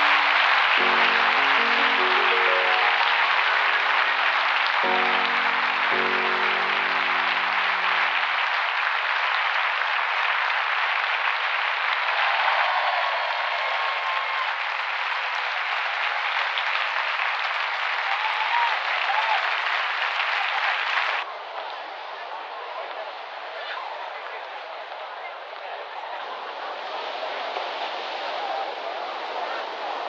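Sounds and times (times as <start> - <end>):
music: 0.0 - 9.2
audience applauding: 0.0 - 30.0.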